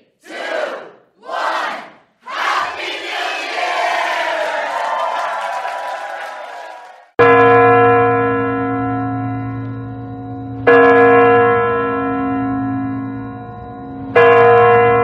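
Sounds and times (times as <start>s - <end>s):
large clock bell striking: 7.2s - 15.0s.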